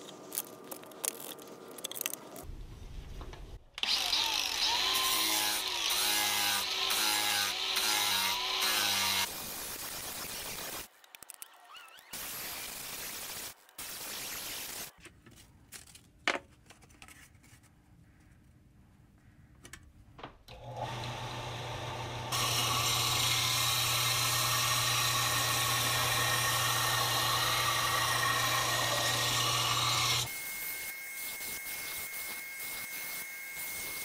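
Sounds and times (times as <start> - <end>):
bench sander humming: 20.6 - 30.3.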